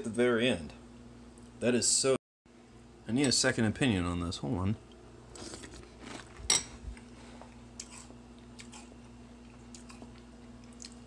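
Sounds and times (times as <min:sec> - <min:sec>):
low steady hum: 0:00.0 - 0:11.0
faint chewing: 0:04.9 - 0:11.0.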